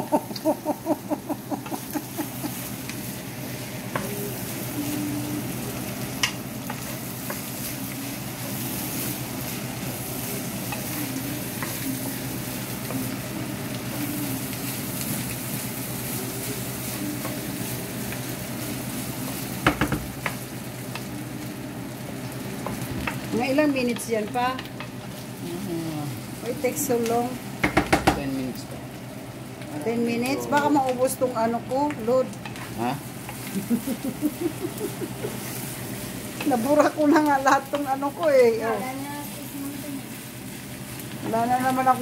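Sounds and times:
meat sizzling in a frying pan: 0.0s - 42.0s
spatula knocking on pan: 19.6s - 20.4s, 27.6s - 28.2s.

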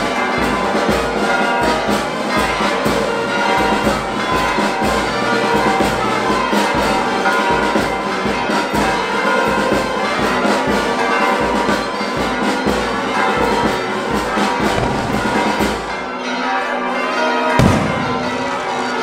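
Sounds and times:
bells ringing: 0.0s - 19.0s
brass music: 0.0s - 19.0s
low drum beat: 14.7s - 15.9s.

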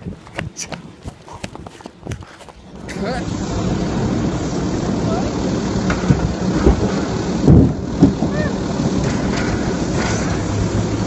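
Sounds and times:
garbage truck engine and hydraulics: 2.6s - 11.0s
cart banging thumps: 2.8s - 11.0s.

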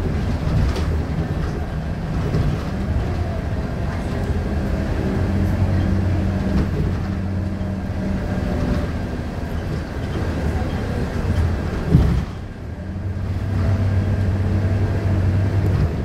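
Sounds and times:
bus diesel engine running: 0.0s - 16.0s.

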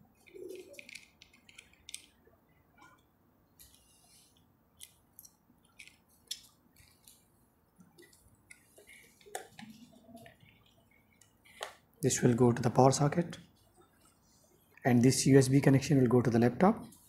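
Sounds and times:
cables clicking and rustling: 0.1s - 14.9s.

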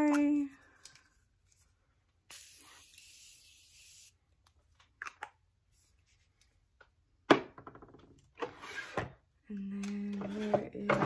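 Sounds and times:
spray bottle hiss: 2.3s - 4.2s.

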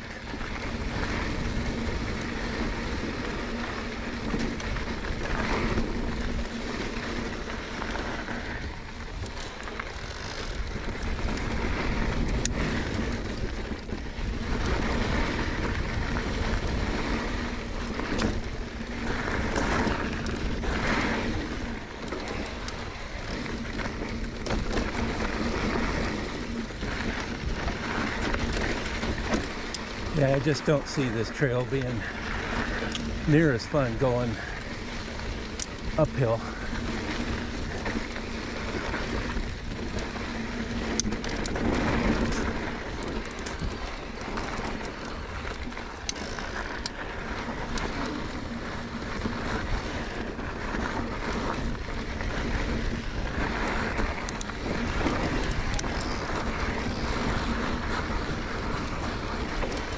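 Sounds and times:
bike tyre noise on rough trail: 0.0s - 59.9s.

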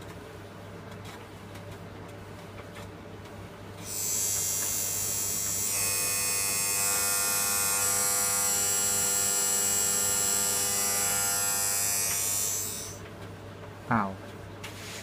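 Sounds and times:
tumble dryer buzzer: 3.8s - 13.0s.

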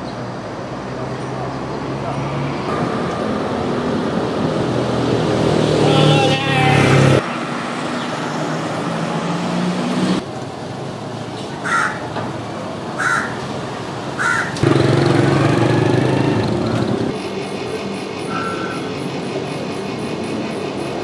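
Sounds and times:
street traffic hum: 0.0s - 21.0s
crow cawing: 11.6s - 12.1s, 13.0s - 13.4s, 14.2s - 14.6s.

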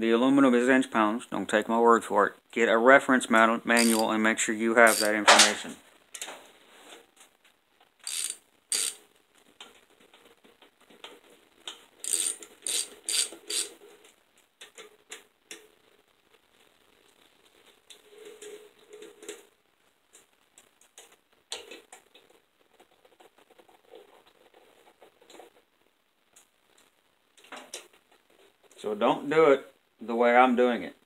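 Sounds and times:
ratchet wrench clicking: 3.8s - 4.1s, 4.9s - 5.2s, 8.0s - 9.0s, 12.0s - 13.7s.

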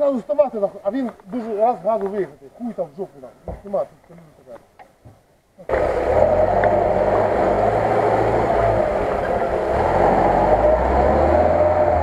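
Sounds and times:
off-road vehicle engine running: 5.7s - 12.0s.

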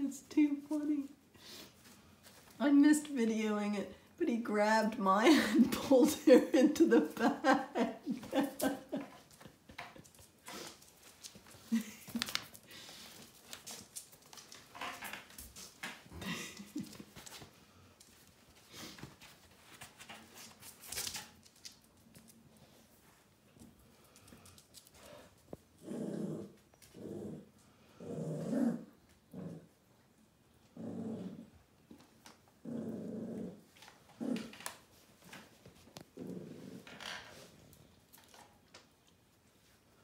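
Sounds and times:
animal growling: 25.8s - 29.7s, 30.7s - 31.5s, 32.6s - 33.6s, 36.2s - 36.9s.

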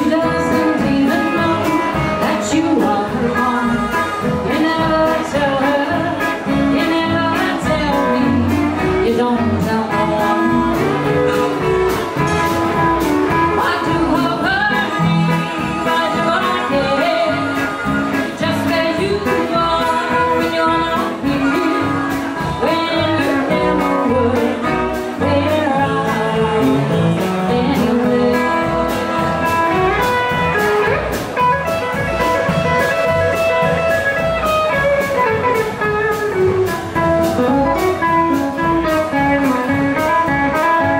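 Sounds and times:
woman singing: 0.0s - 11.6s, 13.2s - 31.0s
drums: 0.0s - 40.9s
electric guitar: 0.0s - 40.9s
harmonica: 14.7s - 19.0s.

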